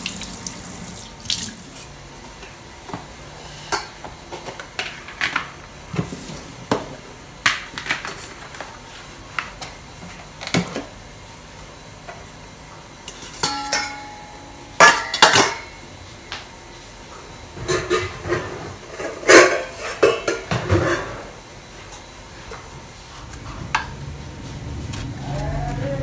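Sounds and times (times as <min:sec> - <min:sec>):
kitchenware knocks and clinks: 0:14.8 - 0:15.7.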